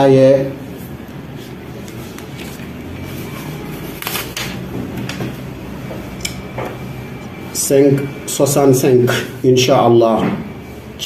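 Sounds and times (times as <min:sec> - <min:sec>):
steady room hum: 0:00.0 - 0:11.0
paper rustling: 0:00.8 - 0:04.6.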